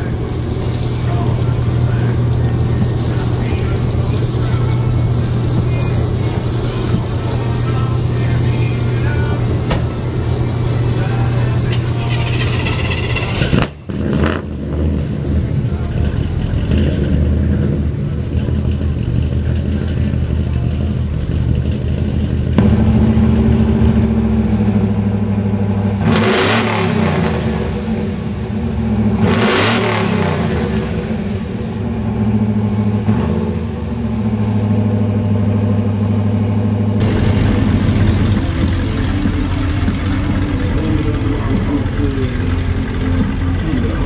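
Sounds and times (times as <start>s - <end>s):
buggy engine running past: 0.0s - 44.0s
truck engine idling: 0.0s - 44.0s
truck engine revving hard: 0.0s - 44.0s.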